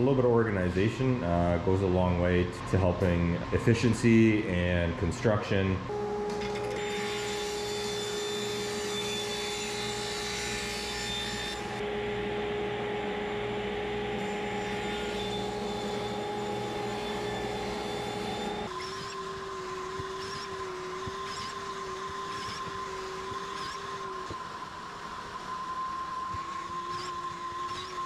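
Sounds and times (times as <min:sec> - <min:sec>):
table saw whining: 0:05.9 - 0:28.0.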